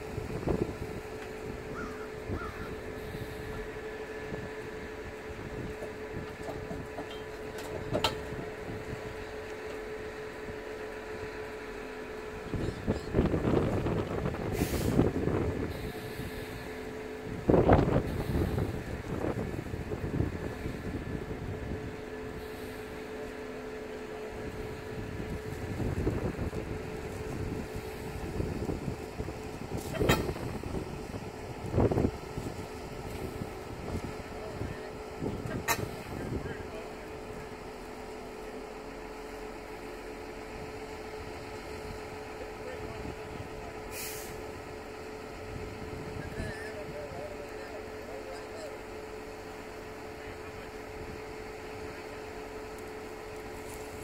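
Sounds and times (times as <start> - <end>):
wind buffeting microphone: 0.0 - 9.4, 12.3 - 23.2, 24.3 - 37.2, 40.5 - 47.4
steady machine hum: 0.0 - 54.0.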